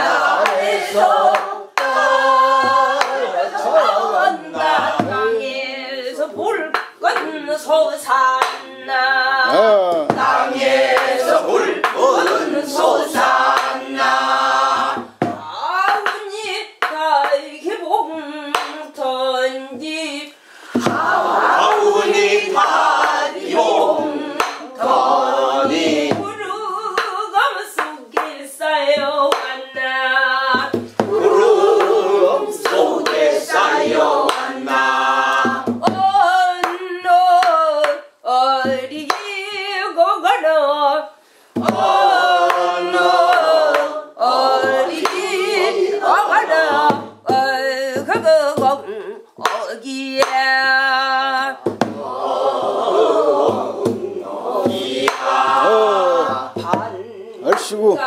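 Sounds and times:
voices singing folk song together: 0:00.0 - 0:58.0
hand clapping: 0:00.4 - 0:03.2, 0:08.4 - 0:08.7, 0:11.0 - 0:12.5, 0:13.1 - 0:17.4, 0:18.6 - 0:18.8, 0:20.8 - 0:26.2, 0:26.9 - 0:27.2, 0:27.8 - 0:28.4, 0:29.3 - 0:29.6, 0:32.6 - 0:38.1, 0:38.7 - 0:39.4, 0:41.6 - 0:45.4, 0:49.4 - 0:50.6, 0:53.5 - 0:55.4.

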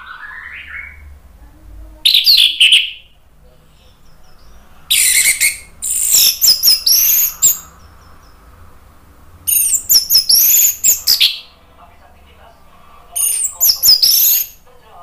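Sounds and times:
thrush singing: 0:03.9 - 0:11.8.

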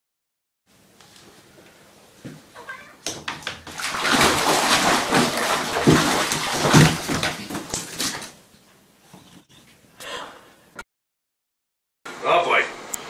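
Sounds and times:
water splashing in a bathtub: 0:02.6 - 0:08.5.

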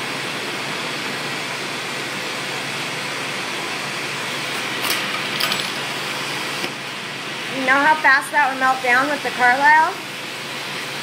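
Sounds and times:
torch flame hissing: 0:00.0 - 0:11.0.

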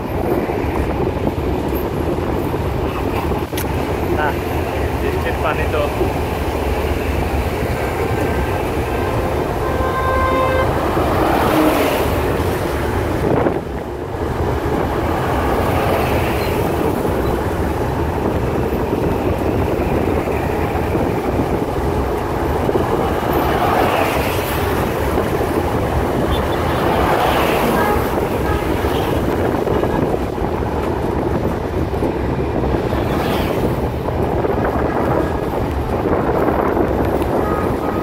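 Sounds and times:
train rumbling and rattling: 0:00.0 - 0:38.0
train horn: 0:08.9 - 0:12.2, 0:27.6 - 0:29.1, 0:37.4 - 0:38.0.

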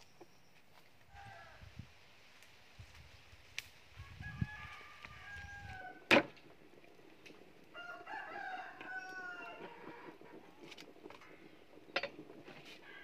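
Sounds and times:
rooster crowing: 0:01.1 - 0:01.7, 0:04.0 - 0:06.1, 0:07.7 - 0:10.2.

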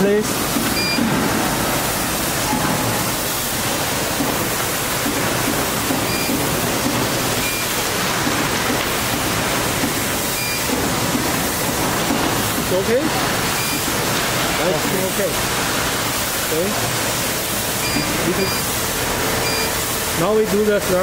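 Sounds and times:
short high beeps: 0:00.8 - 0:01.0, 0:06.1 - 0:06.4, 0:07.4 - 0:07.7, 0:10.4 - 0:10.7, 0:13.6 - 0:13.8, 0:17.8 - 0:18.7, 0:19.4 - 0:19.8.

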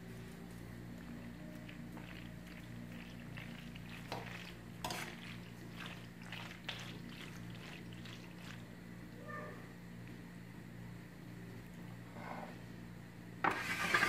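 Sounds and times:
low steady hum: 0:00.0 - 0:14.0
metal spoon scraping pot: 0:13.5 - 0:14.0.

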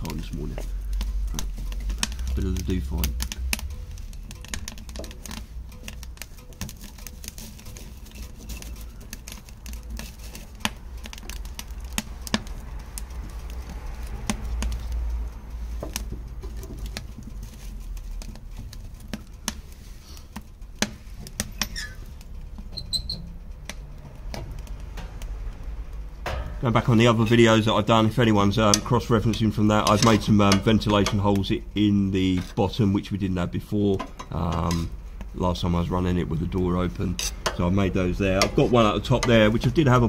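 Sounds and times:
wood fire crackling and popping: 0:00.0 - 0:40.0
metal firebox door handled: 0:26.2 - 0:26.8.

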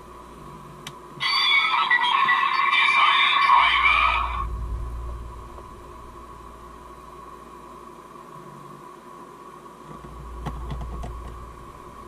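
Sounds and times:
toy belt electronic sound effect: 0:01.2 - 0:04.4.

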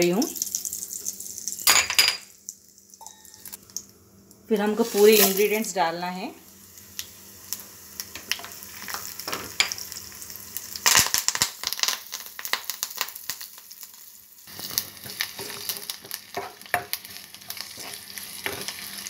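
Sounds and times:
spices crackling in hot oil: 0:00.0 - 0:19.0
spoon stirring a pan: 0:14.6 - 0:19.0.

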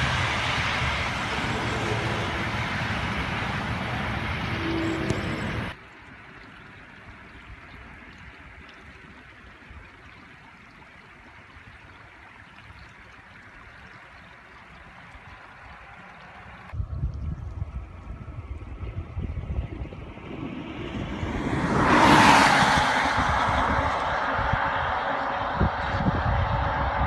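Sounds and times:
wind rumbling on microphone: 0:00.0 - 0:27.0.

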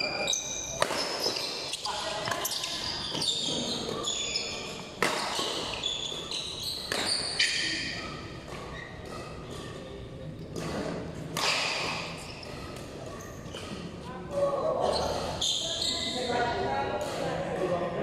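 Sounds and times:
shoes squeaking on court floor: 0:00.0 - 0:17.3
racket striking shuttlecock: 0:00.7 - 0:04.0, 0:04.6 - 0:09.8, 0:10.4 - 0:15.4, 0:17.0 - 0:17.8.

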